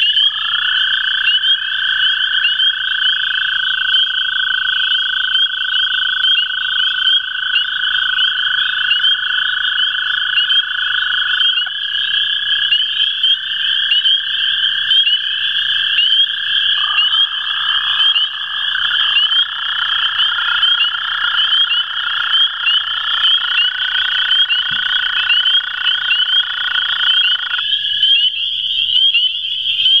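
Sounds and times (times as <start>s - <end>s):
toads trilling: 0.0s - 30.0s
chorus of high chirps: 16.0s - 20.9s.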